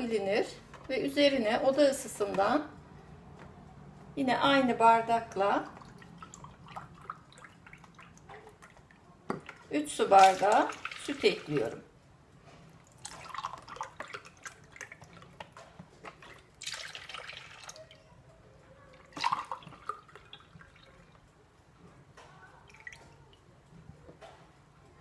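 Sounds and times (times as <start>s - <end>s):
milk pouring splashily: 5.6s - 11.8s, 12.8s - 18.1s, 18.9s - 21.3s.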